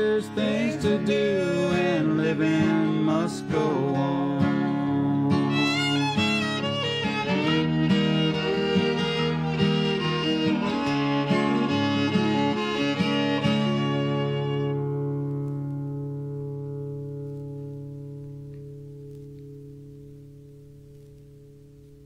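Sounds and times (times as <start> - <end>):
fiddle over guitar: 0.0 - 18.3.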